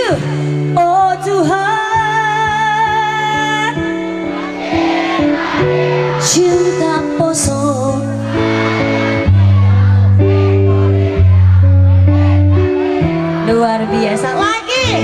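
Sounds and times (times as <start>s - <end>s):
woman singing: 0.0s - 4.0s, 6.2s - 8.2s, 13.4s - 15.0s
band playing with keyboard: 0.0s - 15.0s.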